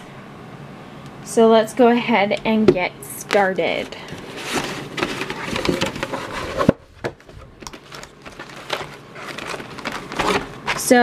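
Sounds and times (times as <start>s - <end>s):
cardboard and paper rustling: 3.2s - 11.0s
cardboard scraping and crackling: 3.3s - 11.0s.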